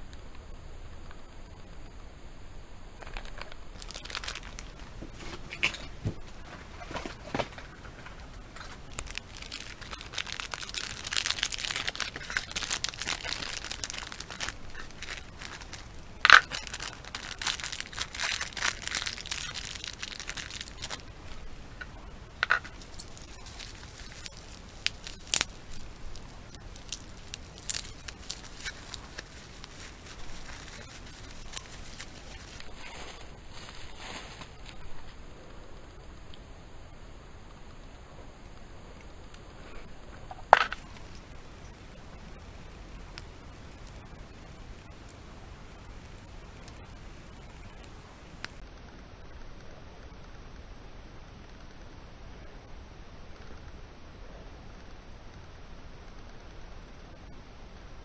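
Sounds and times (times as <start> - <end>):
plastic bag crinkling: 3.0 - 34.8, 40.5 - 41.3.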